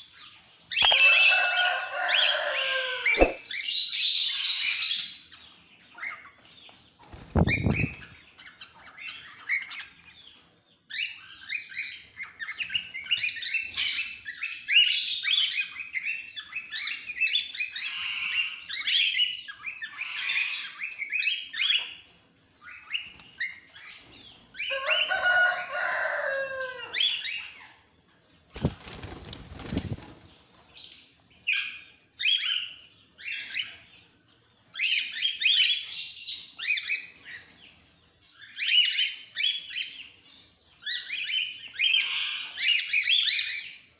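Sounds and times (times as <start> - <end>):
cockatiels chirping and calling: 0.0 - 27.8, 30.8 - 34.1, 34.7 - 43.9
wing flapping: 3.2 - 3.4, 7.1 - 8.2, 28.5 - 30.3.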